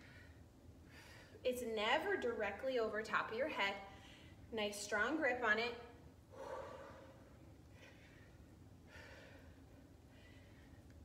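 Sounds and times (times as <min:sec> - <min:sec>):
woman breathing hard: 0:00.0 - 0:01.4, 0:06.3 - 0:11.0.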